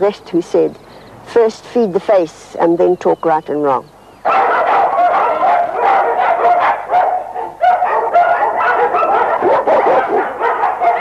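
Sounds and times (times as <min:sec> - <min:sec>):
dog barking: 0:04.3 - 0:11.0.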